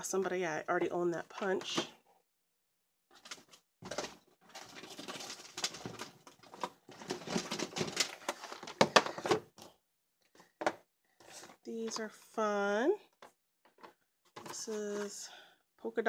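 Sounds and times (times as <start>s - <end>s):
plastic cases rustling and clicking: 3.2s - 9.7s, 13.1s - 15.2s.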